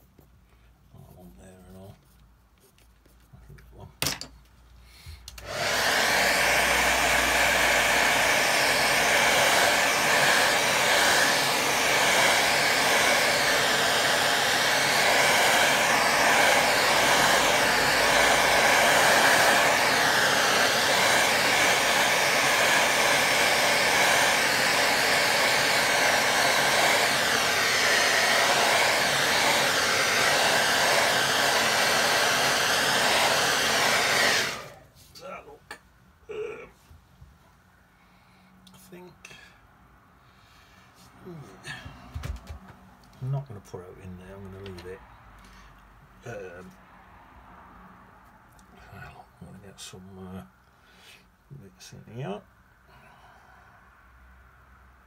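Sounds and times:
hair dryer blowing: 0:05.2 - 0:34.9, 0:41.4 - 0:42.9.

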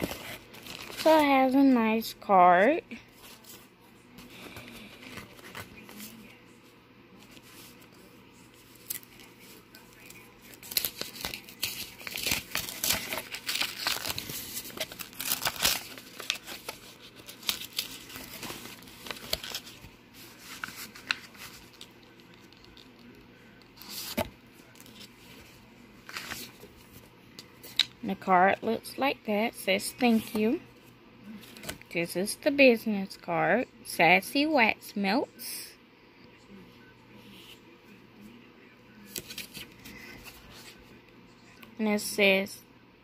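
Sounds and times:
plastic and paper rustling: 0:00.0 - 0:01.8, 0:03.0 - 0:06.4, 0:07.2 - 0:27.8, 0:39.0 - 0:40.9.

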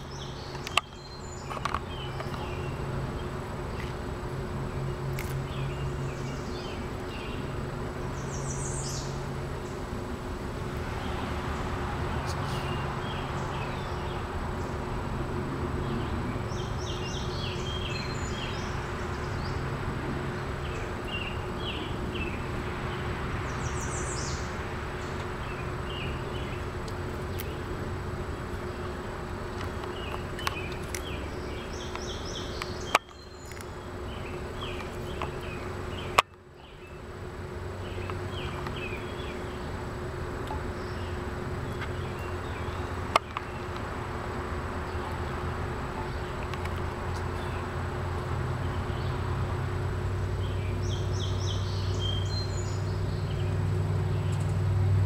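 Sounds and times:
insects buzzing: 0:00.0 - 0:55.0
high insect chirps: 0:15.8 - 0:54.6.

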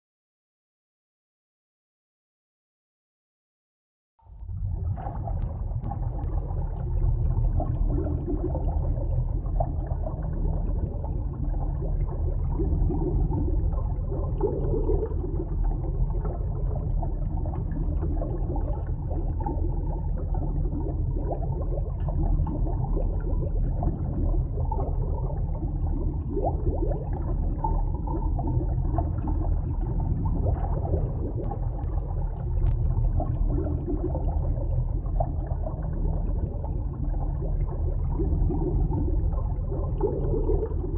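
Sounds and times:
low rumble of moving water: 0:04.2 - 0:40.9
underwater bubbling and gurgling: 0:04.3 - 0:40.9.

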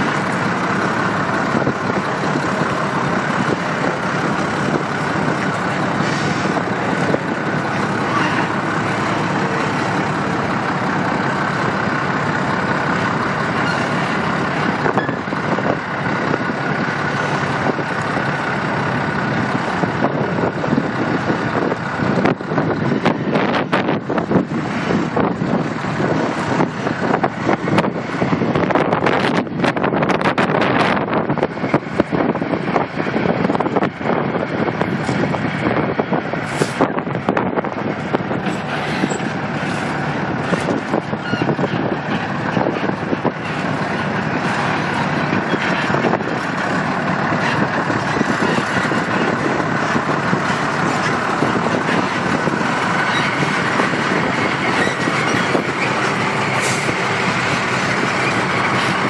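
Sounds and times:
truck diesel engine running: 0:00.0 - 0:59.0.

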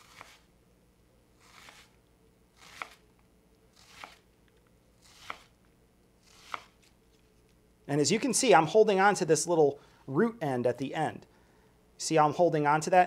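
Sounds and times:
knife cutting onion on board: 0:00.0 - 0:00.5, 0:01.4 - 0:02.0, 0:02.6 - 0:03.0, 0:03.7 - 0:04.3, 0:05.0 - 0:05.5, 0:06.2 - 0:06.9.

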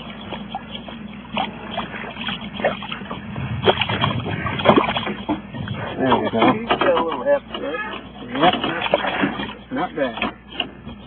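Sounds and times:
fish splashing in water: 0:00.0 - 0:10.8
low steady hum: 0:00.0 - 0:11.0.

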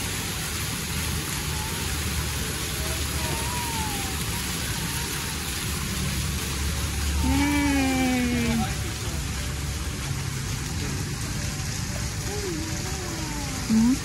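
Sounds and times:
fountain jets splashing: 0:00.0 - 0:14.0.

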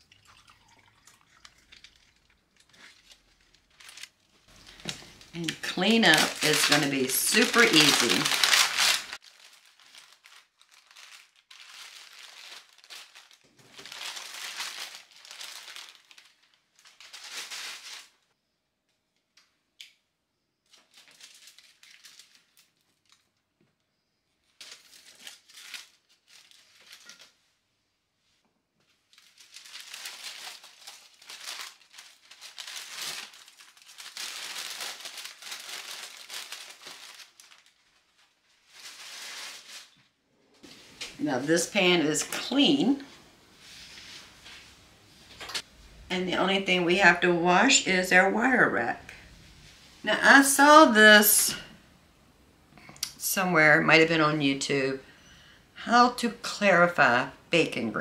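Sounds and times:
paper and foil crumpling: 0:01.4 - 0:18.2, 0:20.7 - 0:23.4, 0:24.4 - 0:27.4, 0:28.9 - 0:40.1.

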